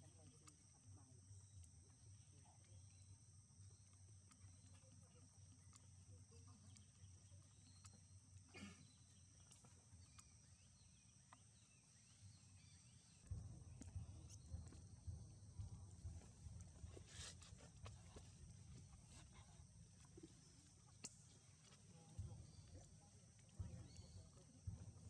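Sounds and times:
low rumble: 0:13.0 - 0:19.5.

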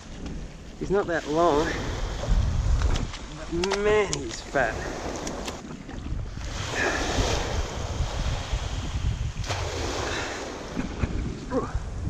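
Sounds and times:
small waves washing on sand: 0:00.0 - 0:12.0
wind rumbling on microphone: 0:00.0 - 0:12.0.

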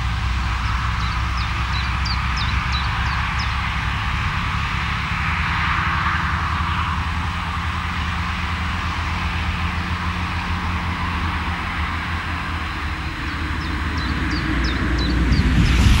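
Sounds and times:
bus diesel engine rumble: 0:00.0 - 0:16.0
bird chirping: 0:13.3 - 0:16.0.

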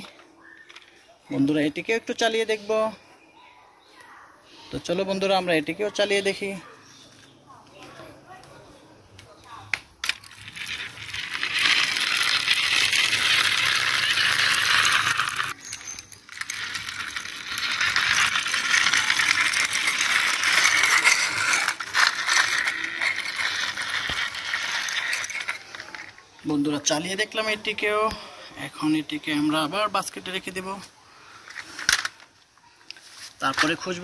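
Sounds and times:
toy car rattling on concrete: 0:09.2 - 0:34.0.

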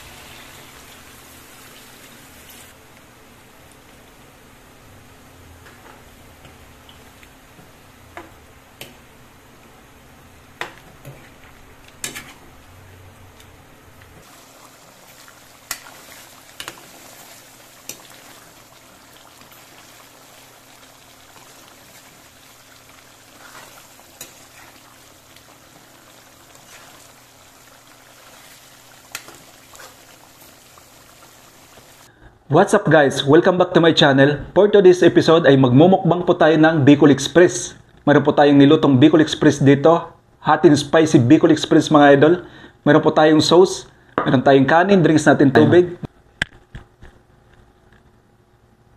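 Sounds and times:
food sizzling in a pan: 0:00.0 - 0:02.8, 0:14.2 - 0:32.1.

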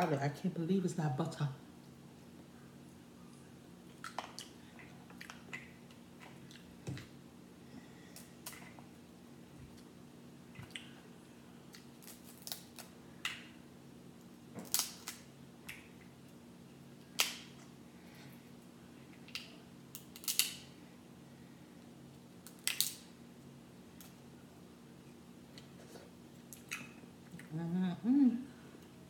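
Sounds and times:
faint steady hum: 0:00.0 - 0:29.0
crab shells cracking: 0:11.8 - 0:13.5, 0:14.6 - 0:15.8, 0:19.3 - 0:20.6, 0:22.4 - 0:23.1.

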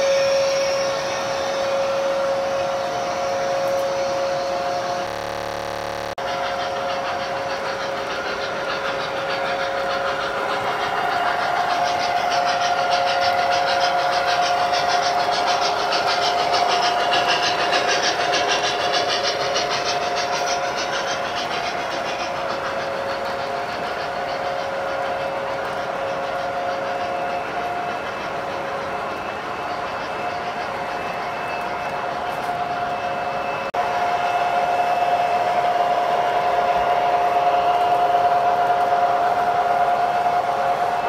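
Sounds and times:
model train wheels rumbling and clicking: 0:00.0 - 0:41.0
steady high whine: 0:00.8 - 0:06.5.

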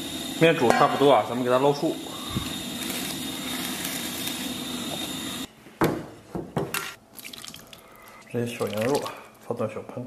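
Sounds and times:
ladle knocking steel basin: 0:00.6 - 0:01.1.

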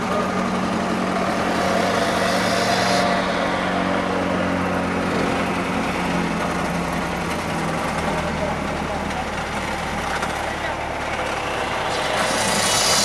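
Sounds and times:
construction machinery engines humming: 0:00.0 - 0:13.0
hiss: 0:01.4 - 0:03.9, 0:11.9 - 0:13.0.

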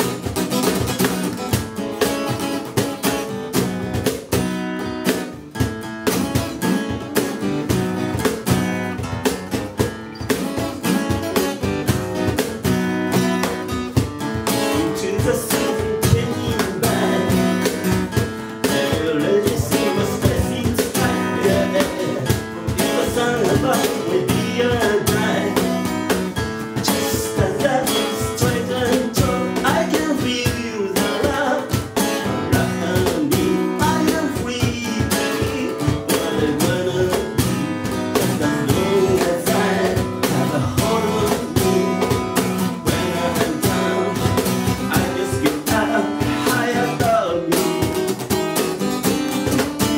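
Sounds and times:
acoustic guitar strumming: 0:00.0 - 0:49.9
cajon struck by hand: 0:00.0 - 0:49.9
man singing: 0:13.1 - 0:48.2.

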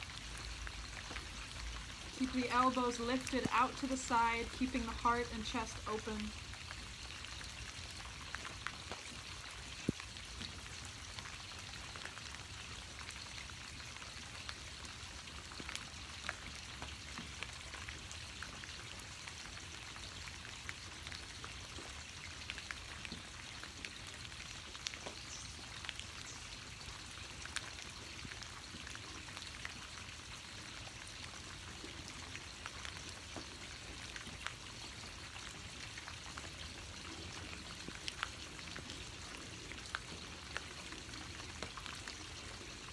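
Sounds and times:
raindrops ticking: 0:00.0 - 0:42.9
steady rain patter: 0:00.0 - 0:42.9.

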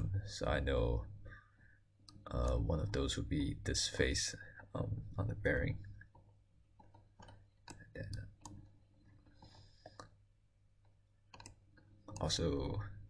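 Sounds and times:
computer mouse clicks: 0:06.1 - 0:10.2, 0:10.8 - 0:12.3.

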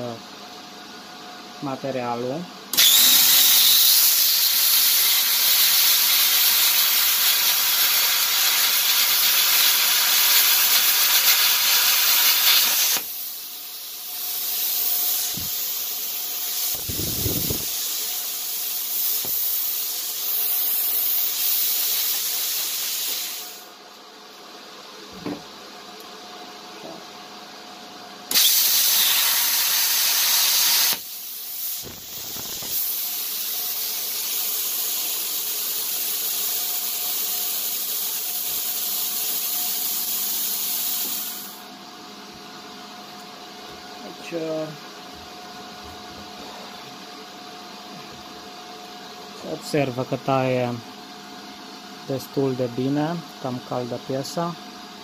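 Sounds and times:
plasma cutter loud hiss: 0:02.7 - 0:23.7, 0:28.3 - 0:41.6.

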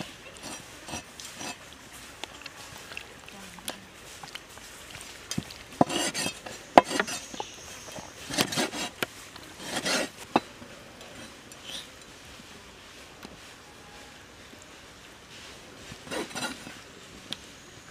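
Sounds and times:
meat scraping and rustling: 0:00.0 - 0:02.9, 0:05.1 - 0:12.0, 0:15.9 - 0:17.0.

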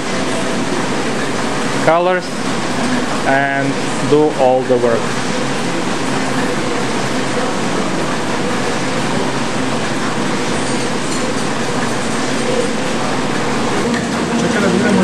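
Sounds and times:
printing press running: 0:00.0 - 0:15.0.

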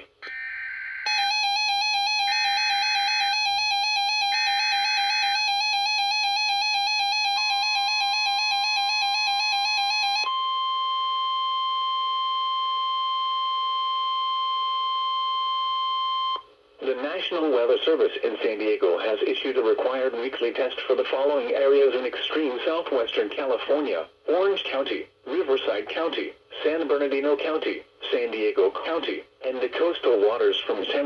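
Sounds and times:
steady warning tone: 0:00.0 - 0:15.5.

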